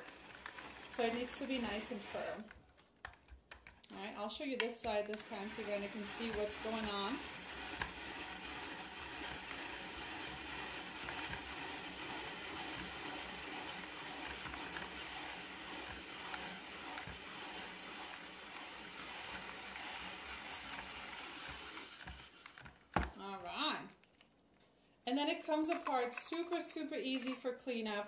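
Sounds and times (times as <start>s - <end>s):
spiralizer scraping vegetable: 0.0s - 23.7s.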